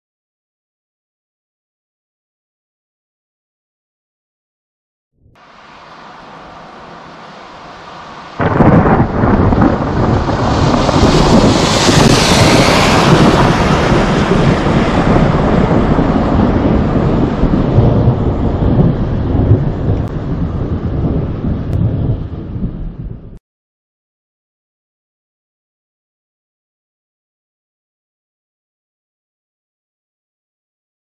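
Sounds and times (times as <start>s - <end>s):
thunder clap and rumble: 7.8s - 23.4s.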